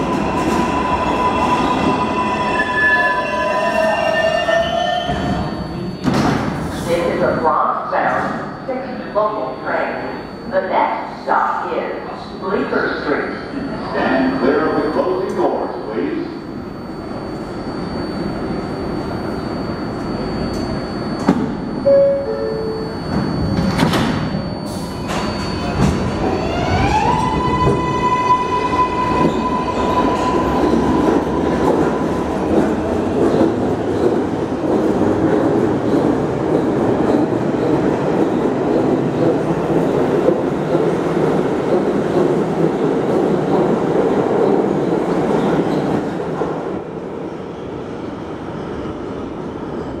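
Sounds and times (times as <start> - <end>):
train doors shutting: 0.0 - 7.2, 17.1 - 46.9
train cars rumbling on rails: 22.9 - 50.0.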